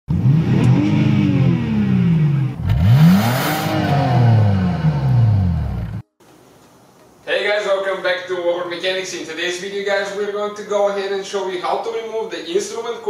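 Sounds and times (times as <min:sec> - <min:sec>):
car engine revving: 0:00.1 - 0:06.0.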